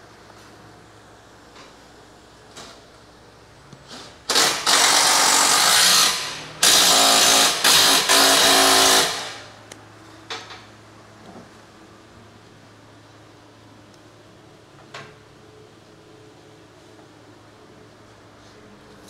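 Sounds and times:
power tool running: 4.3 - 9.6.

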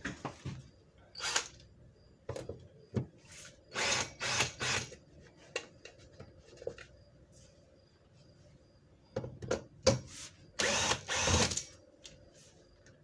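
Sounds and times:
cordless drill spinning: 1.2 - 1.6, 3.7 - 5.0, 10.6 - 11.6.

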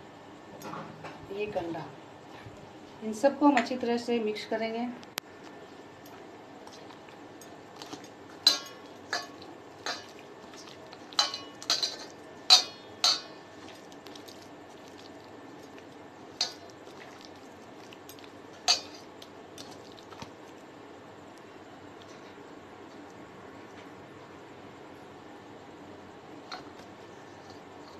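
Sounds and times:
metal mixing bowl clinking: 7.4 - 14.3, 18.0 - 19.8.

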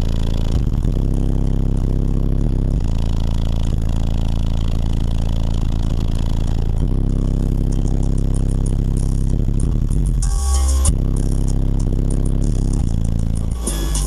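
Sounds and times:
subwoofer deep bass notes: 0.0 - 14.0.

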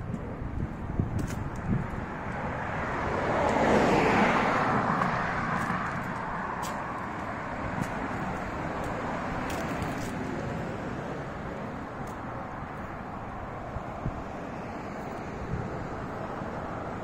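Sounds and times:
car passing by: 2.2 - 11.7.

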